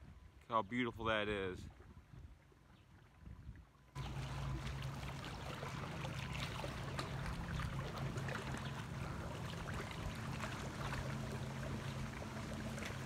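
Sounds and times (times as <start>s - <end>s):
water lapping on rocky shore: 1.2s - 13.0s
steady low hum: 4.0s - 13.0s.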